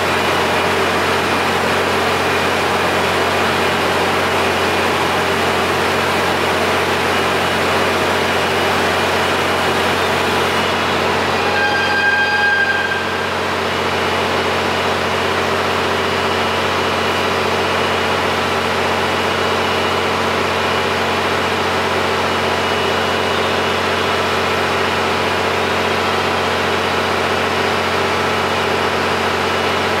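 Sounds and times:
diesel train engine idling: 0.0 - 30.0
brief high-pitched tone: 10.7 - 14.0.

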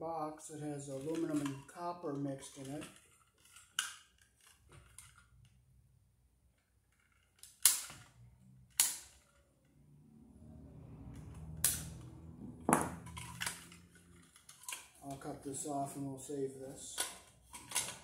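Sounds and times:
wire cutters snapping wires: 7.4 - 8.1, 8.7 - 9.2, 11.6 - 12.2
low rumble: 9.6 - 14.1.

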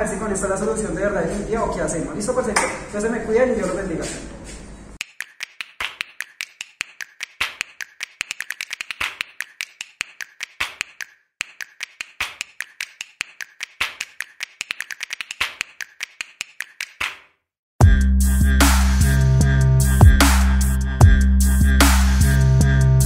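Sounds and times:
rapid sharp clicks: 5.0 - 17.2.

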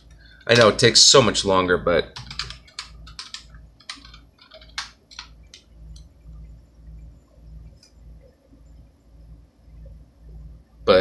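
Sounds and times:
keyboard keystrokes clicking: 2.2 - 6.1
low hum: 5.4 - 11.0.

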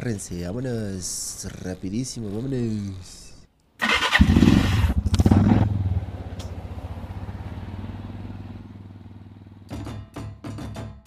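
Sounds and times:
motorcycle engine revving: 3.8 - 9.8.

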